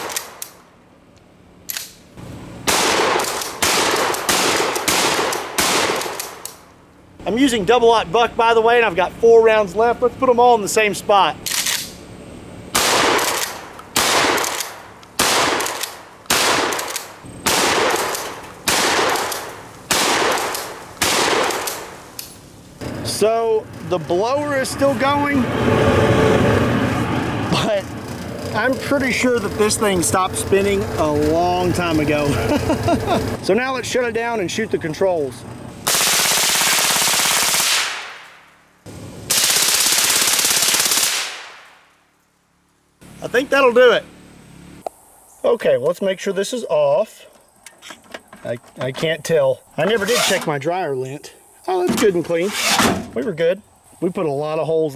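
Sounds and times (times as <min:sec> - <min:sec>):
shotgun blasts with echo: 0:02.6 - 0:06.4, 0:12.7 - 0:22.0, 0:35.9 - 0:38.4.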